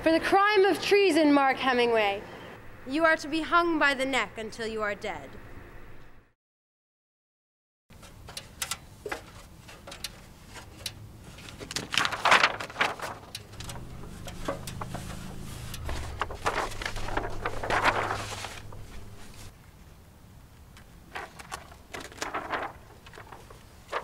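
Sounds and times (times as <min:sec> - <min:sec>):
paper rustling and flapping: 0:08.0 - 0:19.5, 0:20.8 - 0:24.0
low steady hum: 0:12.0 - 0:20.7, 0:21.5 - 0:24.0.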